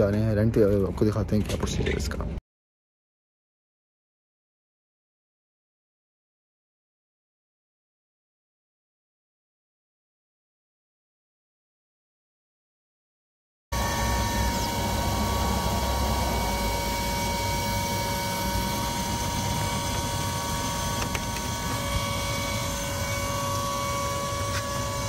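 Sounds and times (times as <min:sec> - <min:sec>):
machinery hum: 0:13.8 - 0:25.0.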